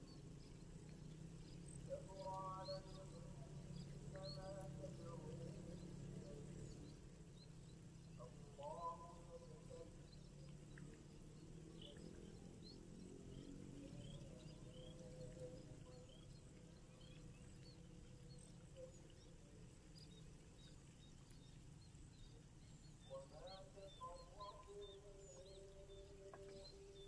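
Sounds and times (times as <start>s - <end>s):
low steady background: 0.0s - 27.0s.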